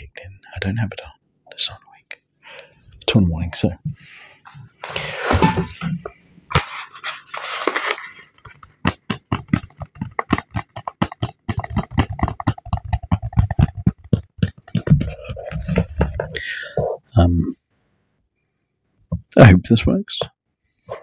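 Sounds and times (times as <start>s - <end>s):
cardboard rustling: 4.8s - 13.9s, 14.6s - 16.4s
fingertips tapping on cardboard box: 8.4s - 16.9s.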